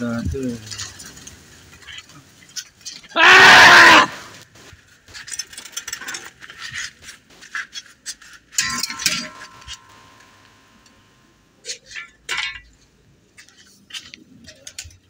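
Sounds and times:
metal object clattering on tile: 8.2 - 11.0.

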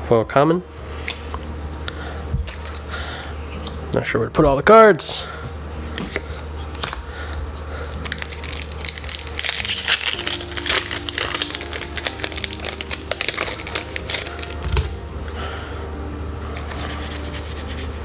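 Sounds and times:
foil wrapper crinkling: 7.9 - 15.0.

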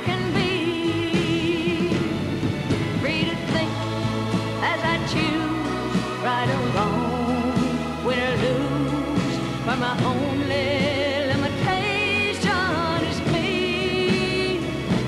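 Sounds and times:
instrumental accompaniment: 0.0 - 15.0
women singing a slow song: 3.0 - 15.0.

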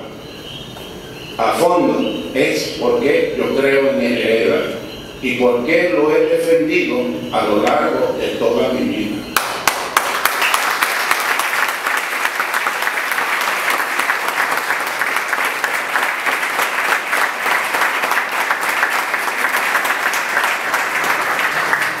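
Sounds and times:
audience clapping: 9.4 - 22.0.

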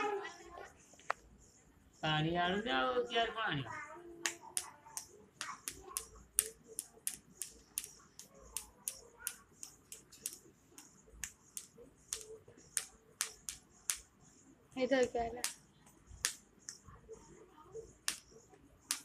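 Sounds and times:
sharp irregular clicks: 4.2 - 14.1.

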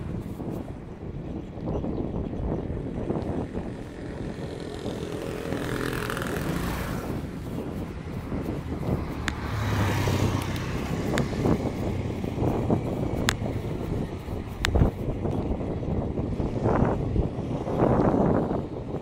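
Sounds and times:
road rumble: 0.0 - 19.0
wind on microphone: 0.0 - 19.0
motor scooter engine running: 3.2 - 18.5
sharp clicks: 9.2 - 9.4, 13.2 - 13.5.

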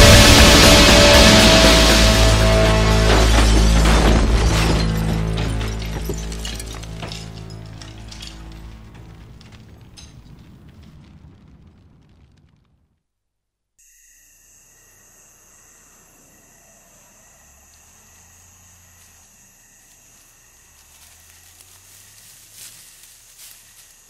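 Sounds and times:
crickets chirring: 13.8 - 24.0.

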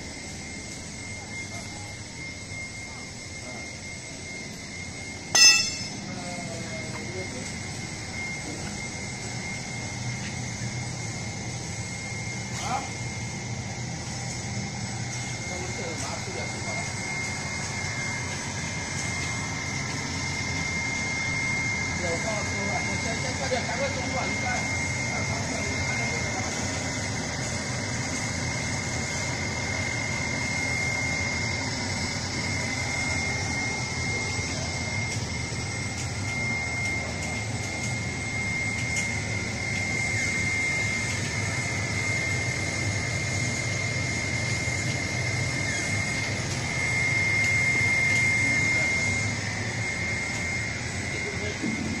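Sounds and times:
machine humming with high tone: 0.0 - 52.0.

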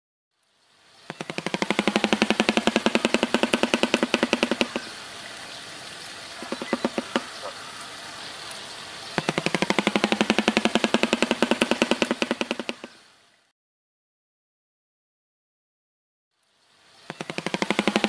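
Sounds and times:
bird clattering its bill: 1.1 - 5.0, 6.4 - 7.6, 9.2 - 13.0, 17.1 - 18.0.

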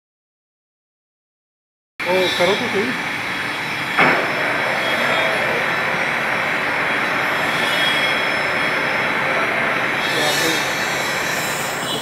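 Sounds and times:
lathe running: 2.0 - 12.0
metal clank: 4.0 - 4.5.

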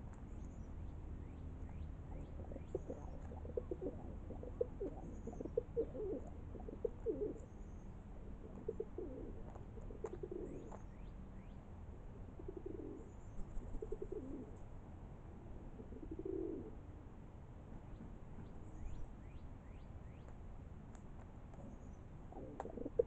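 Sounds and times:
pigeon cooing: 2.1 - 7.6, 8.3 - 10.8, 12.2 - 14.6, 15.6 - 16.8, 22.3 - 23.0
faint small bird chirps: 17.9 - 20.4.

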